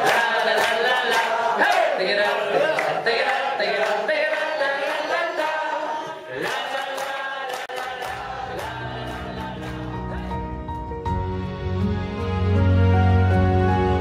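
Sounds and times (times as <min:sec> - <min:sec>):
hand-clapping: 0:00.0 - 0:05.6, 0:06.4 - 0:10.3
people chanting in unison: 0:00.0 - 0:10.5
recorded music: 0:00.0 - 0:14.0.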